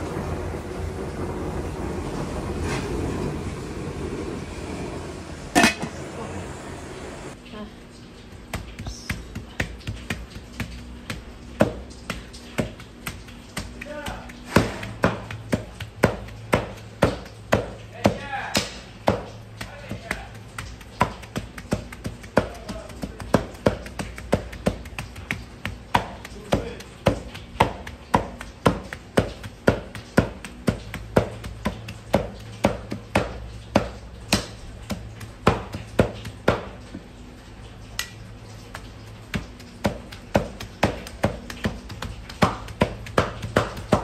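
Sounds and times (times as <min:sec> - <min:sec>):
knives chopping meat on wooden block: 0:08.5 - 0:36.7, 0:38.7 - 0:44.0.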